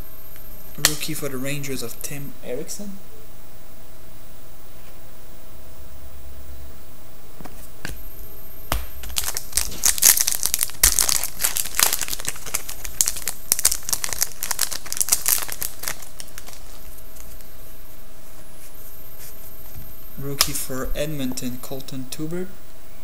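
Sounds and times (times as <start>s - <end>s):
foil wrapper crinkling and tearing: 9.0s - 17.5s.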